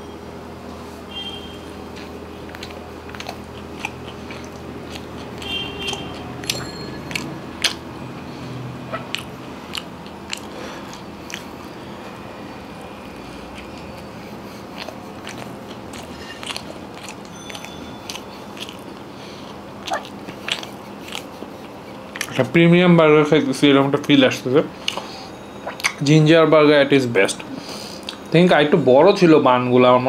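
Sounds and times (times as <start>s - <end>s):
person chewing crispy food: 1.9s - 22.5s.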